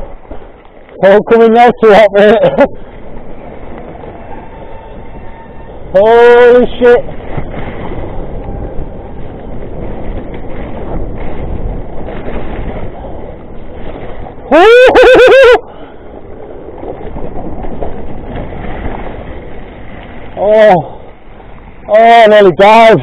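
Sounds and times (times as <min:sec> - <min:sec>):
bike and tyres rattling: 0:00.0 - 0:23.0
wind rushing: 0:02.7 - 0:22.1
person yelling: 0:14.5 - 0:15.6.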